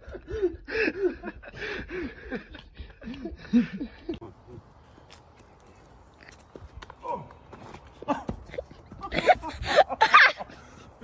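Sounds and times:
person laughing hard: 0.0 - 4.2, 8.0 - 10.7.

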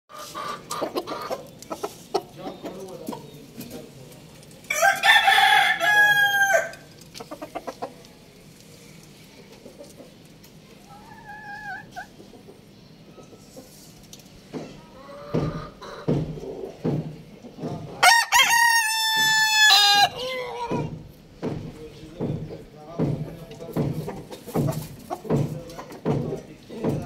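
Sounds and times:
chicken clucking: 0.1 - 5.7, 6.4 - 21.1, 21.7 - 27.0
rooster crowing: 4.7 - 6.8, 18.0 - 20.5.

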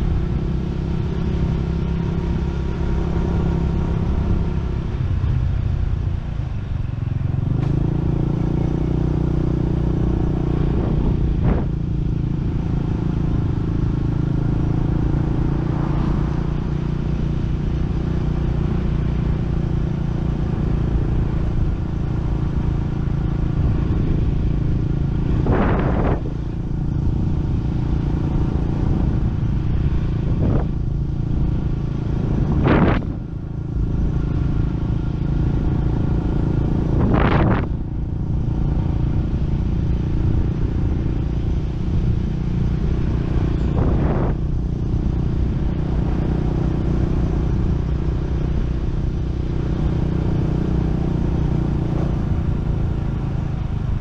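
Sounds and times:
wind noise on microphone: 3.2 - 18.0, 18.6 - 54.0
small motorcycle engine running: 7.1 - 54.0.

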